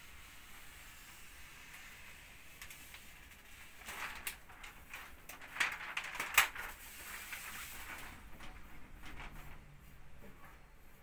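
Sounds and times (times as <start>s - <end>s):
plastic film crinkling and crackling: 1.1s - 9.8s.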